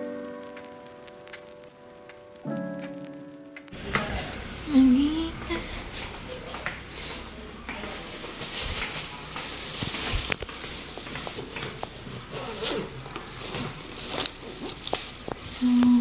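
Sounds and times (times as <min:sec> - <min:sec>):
handling rustle: 0:05.8 - 0:16.0.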